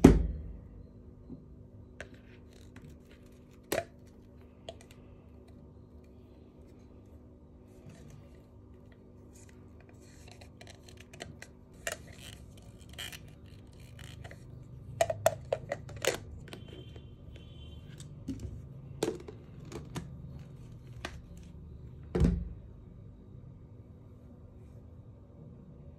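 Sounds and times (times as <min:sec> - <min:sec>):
plastic parts clicking and knocking: 0:10.4 - 0:17.0, 0:18.0 - 0:21.5.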